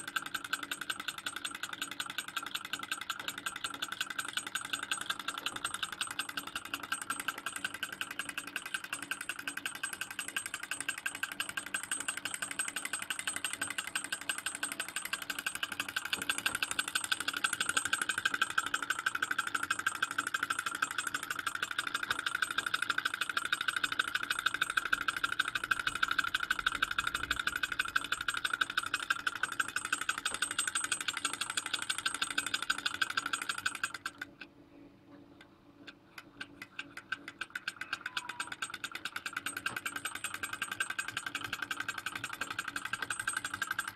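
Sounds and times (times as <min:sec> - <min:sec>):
model engine mechanical rattle: 0:00.0 - 0:34.5, 0:35.3 - 0:43.9.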